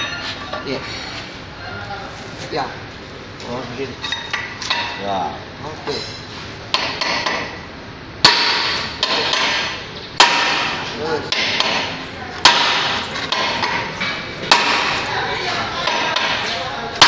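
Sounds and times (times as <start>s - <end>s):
metallic ring: 0.0s - 1.2s.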